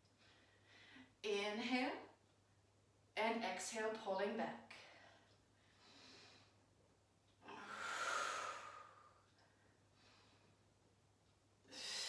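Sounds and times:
woman breathing: 0.0s - 1.2s, 4.7s - 6.8s, 7.4s - 10.8s, 11.6s - 12.0s.

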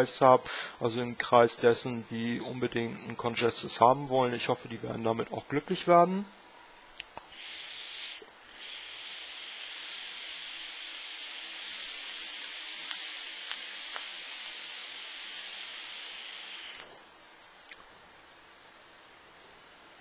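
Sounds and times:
vaporizer coils sizzling: 7.0s - 17.8s
hiss of air draw: 7.2s - 17.0s
faint crackles: 10.4s - 16.9s.

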